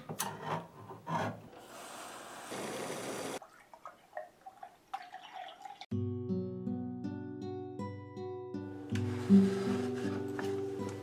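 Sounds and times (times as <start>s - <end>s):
milk pouring into a glass: 3.4s - 5.9s.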